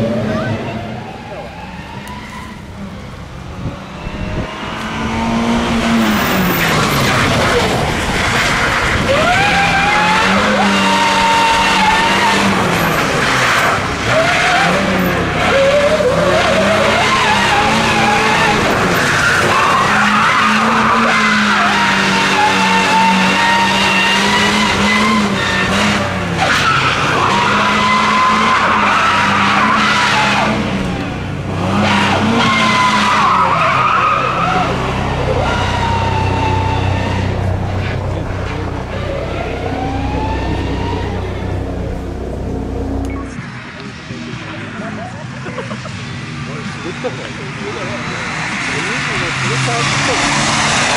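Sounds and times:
tyres squealing: 0.1 - 43.4
van engine revving: 2.1 - 45.1
deep rumble: 36.1 - 43.6.

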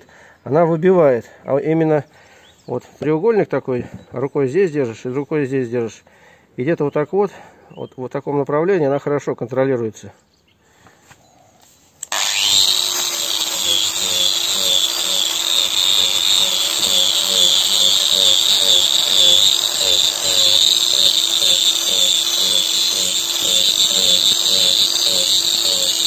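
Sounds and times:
angle grinder cutting wood: 12.0 - 26.0.

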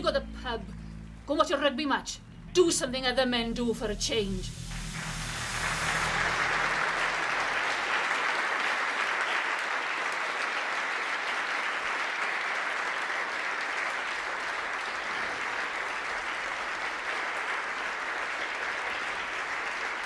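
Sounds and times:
crowd clapping: 4.6 - 20.0.

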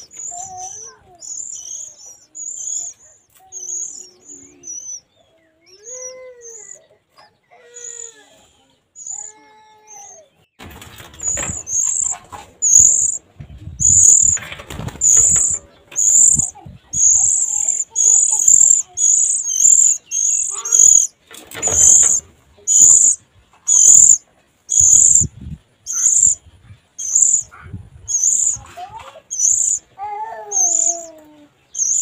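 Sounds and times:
nestlings begging calls: 0.0 - 10.3, 11.0 - 32.0
wings fluttering: 10.6 - 24.2.

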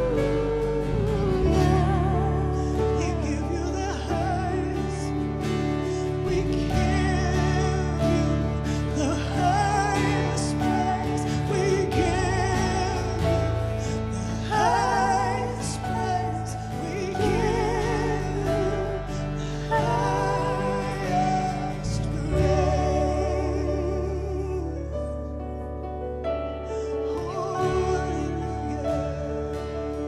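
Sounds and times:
keyboard and guitar chords: 0.0 - 30.0
women singing: 14.1 - 24.6.

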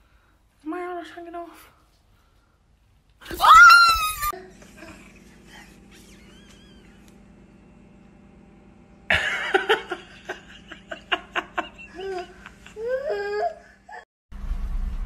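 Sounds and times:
high wavering cries: 3.4 - 4.4
people laughing loudly: 9.1 - 12.9.

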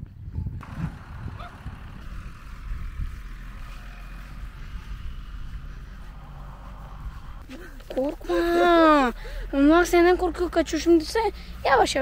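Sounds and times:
wind buffeting microphone: 0.0 - 7.5.

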